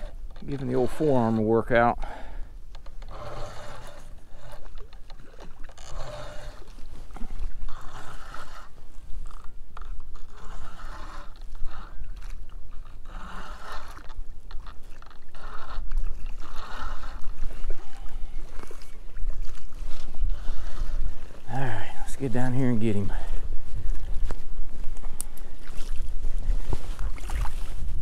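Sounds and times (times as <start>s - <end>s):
fishing reel being cranked: 0.0s - 1.6s, 2.7s - 18.2s, 20.2s - 21.8s
wind rumble on microphone: 6.3s - 28.0s.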